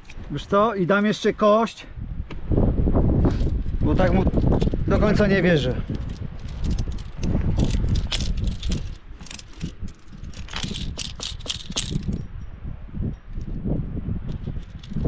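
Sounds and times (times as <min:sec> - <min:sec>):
metal climbing gear clinking: 0:00.0 - 0:00.4, 0:04.3 - 0:15.0.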